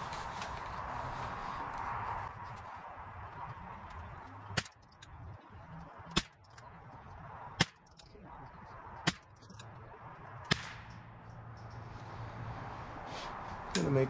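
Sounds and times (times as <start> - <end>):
rifle shots: 10.5 - 10.9.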